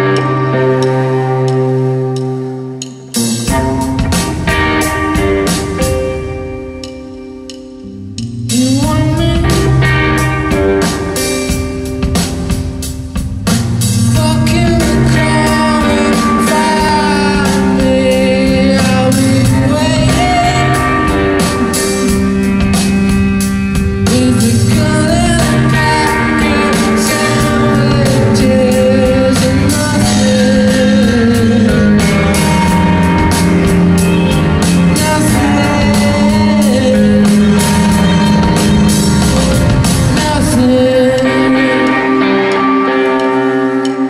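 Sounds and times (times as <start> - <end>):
bass: 0.0 - 44.0
guitar: 0.0 - 44.0
drum beat: 3.1 - 6.6, 8.2 - 40.6
man singing: 8.5 - 11.5, 14.0 - 22.8, 24.0 - 33.6, 34.6 - 44.0.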